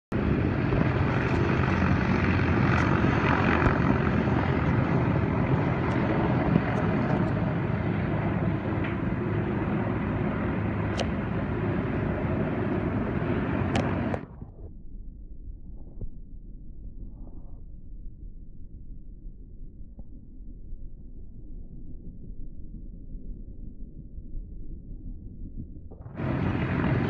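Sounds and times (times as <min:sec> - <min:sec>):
helicopter rotor chop: 0:00.1 - 0:14.3, 0:26.1 - 0:27.0
turbine noise: 0:00.1 - 0:27.0.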